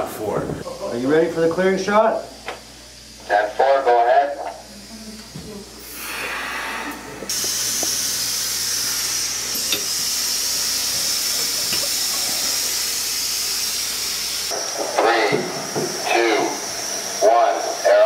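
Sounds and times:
compressed air hissing through hose: 5.0s - 18.0s.

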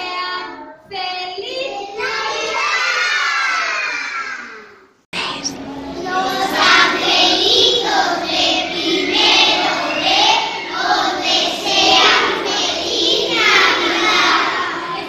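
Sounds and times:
children's choir singing: 5.2s - 15.0s.

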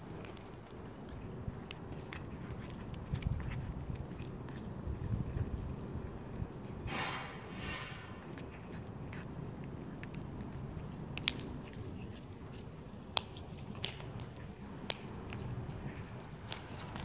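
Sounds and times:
cat chewing food: 0.0s - 17.0s
low background rumble: 0.0s - 17.0s.

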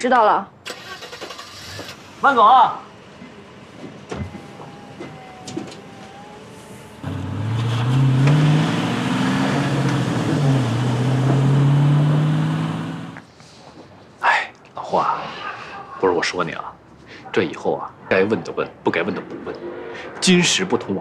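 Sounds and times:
van engine pulling away: 0.7s - 13.2s.

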